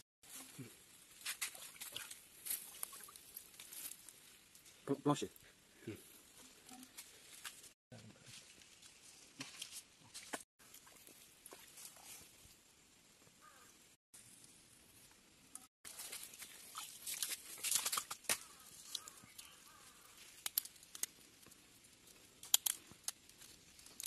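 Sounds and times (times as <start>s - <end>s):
hands handling wet mud and leaves: 15.9s - 24.0s.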